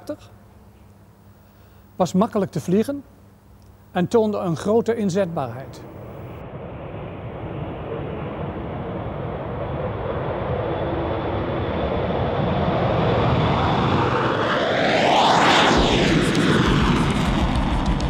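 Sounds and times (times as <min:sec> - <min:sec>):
jet fighters taking off: 0:05.4 - 0:18.0.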